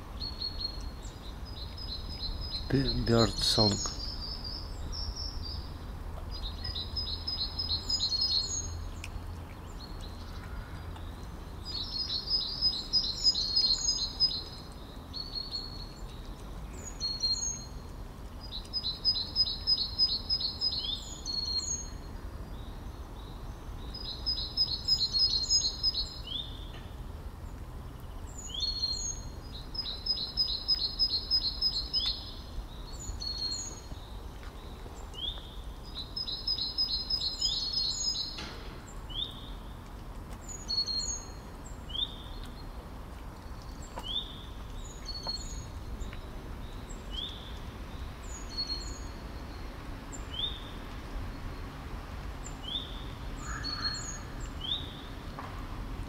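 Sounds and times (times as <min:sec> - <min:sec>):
songbird singing: 0:00.0 - 0:56.0.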